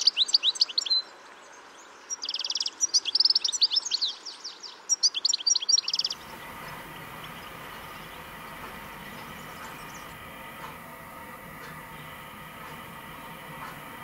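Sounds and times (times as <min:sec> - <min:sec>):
bird twittering: 0:02.0 - 0:14.0
steady low rumble: 0:06.2 - 0:14.0.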